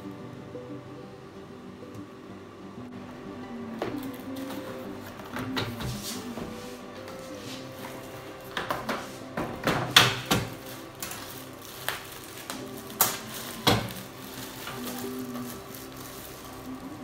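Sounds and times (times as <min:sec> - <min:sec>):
soft background music: 0:00.0 - 0:17.0
plastic wrap crinkling: 0:07.1 - 0:17.0.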